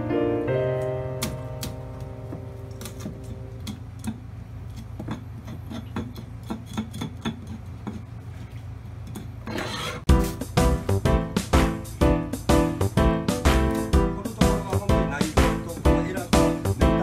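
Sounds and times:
low steady hum: 0.0s - 9.5s
loud music: 10.1s - 17.0s.

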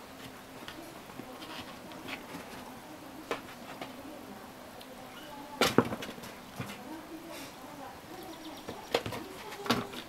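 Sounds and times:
kittens scratching paper: 0.2s - 4.1s, 8.7s - 10.0s.

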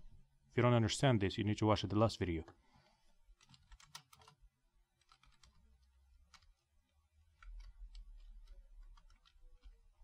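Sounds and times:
keyboard typing: 3.3s - 10.0s.

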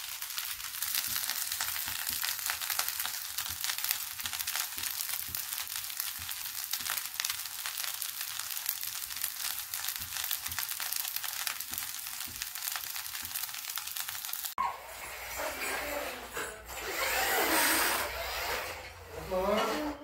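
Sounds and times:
rice sizzling in a pan: 0.0s - 14.6s.

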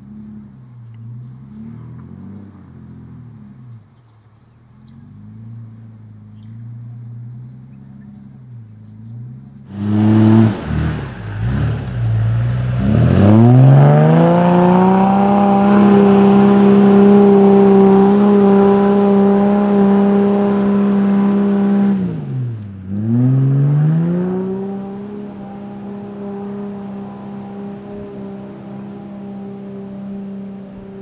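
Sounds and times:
engine revving hard: 9.7s - 31.0s.

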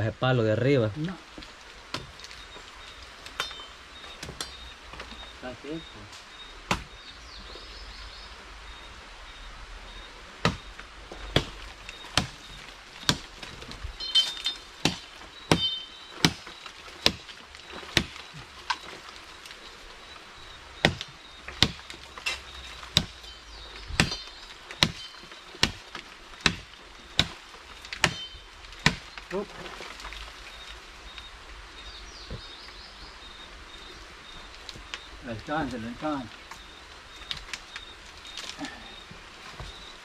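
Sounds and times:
machete chopping wooden pole: 6.7s - 6.9s, 11.3s - 11.6s, 14.1s - 17.2s, 17.8s - 18.2s, 20.8s - 23.2s, 23.9s - 25.8s, 26.4s - 27.4s, 28.0s - 29.1s.

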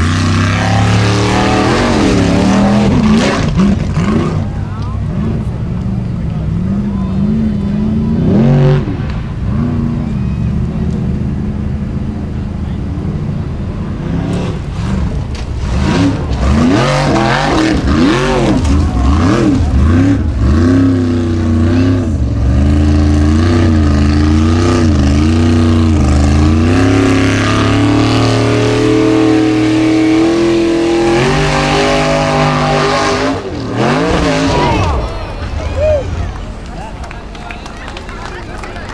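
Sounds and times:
race engine revving hard: 0.0s - 12.0s, 13.0s - 37.3s.

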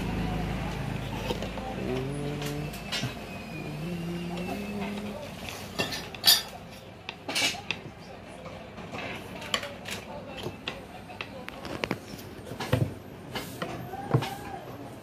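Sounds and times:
tools clinking and clanking: 0.7s - 3.5s, 4.4s - 8.0s.

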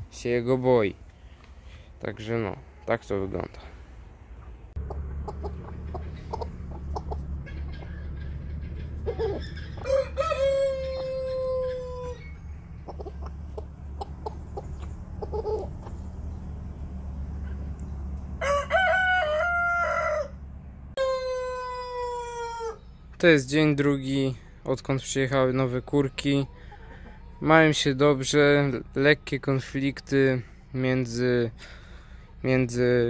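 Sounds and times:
hens clucking: 2.3s - 20.4s, 25.2s - 33.0s
steady low rumble: 3.4s - 21.0s
rooster crowing: 9.0s - 12.6s, 18.4s - 20.4s, 21.0s - 22.9s.

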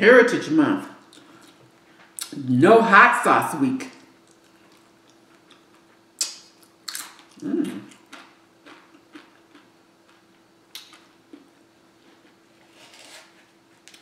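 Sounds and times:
chewing and mouth clicks: 4.2s - 11.5s.

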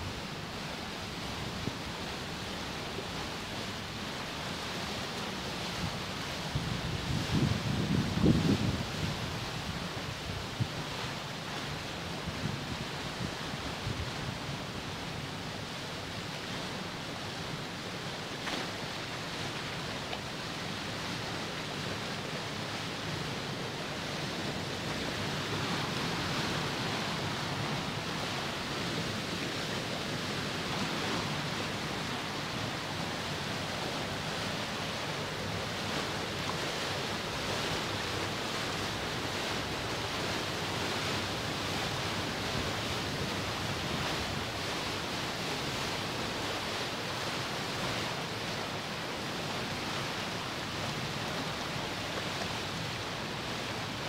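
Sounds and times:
water rushing and churning: 0.0s - 54.0s.

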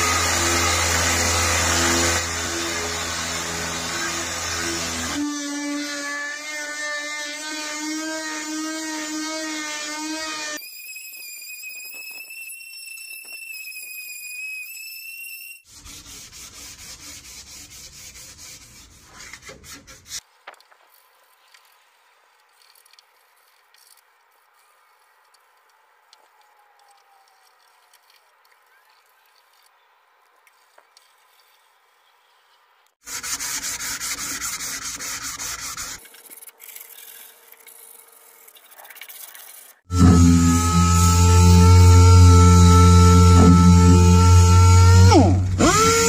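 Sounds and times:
hand sanding scratches: 15.7s - 20.3s, 33.0s - 45.0s.

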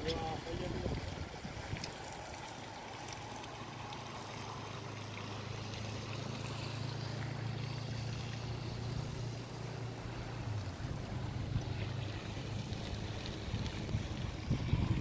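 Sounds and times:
strong wind hissing: 13.3s - 15.0s.

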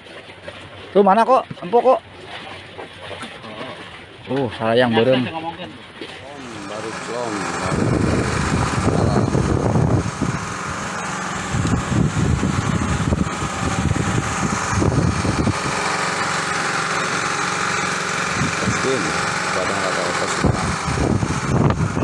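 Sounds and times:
small engine running: 6.2s - 22.0s
low rumble: 7.6s - 16.0s.

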